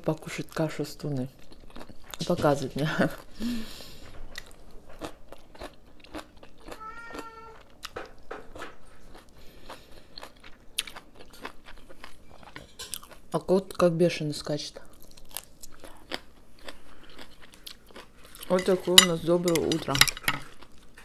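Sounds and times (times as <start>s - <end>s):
person chewing crunchy food: 1.3s - 2.4s, 4.0s - 13.3s, 14.9s - 21.0s.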